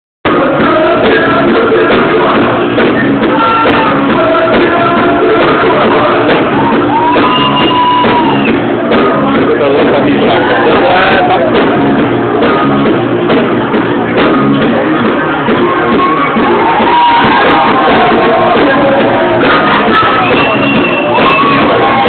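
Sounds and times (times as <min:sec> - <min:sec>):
electro-rock band playing loudly: 0:00.2 - 0:22.0
person singing: 0:00.3 - 0:08.2, 0:15.8 - 0:22.0.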